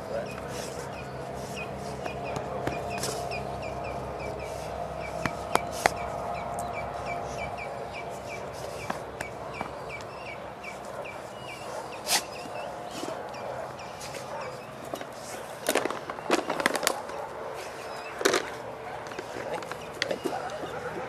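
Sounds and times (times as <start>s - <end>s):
bird chirping: 0.0s - 21.0s
loud scuffing noise: 10.8s - 13.2s.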